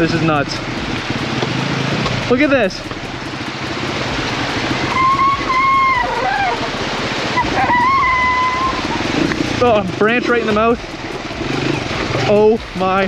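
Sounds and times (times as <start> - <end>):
motorcycle engine at low speed: 0.0 - 13.0
splashing through rushing water: 0.0 - 13.0
high-pitched tones: 4.9 - 6.7, 7.4 - 9.0.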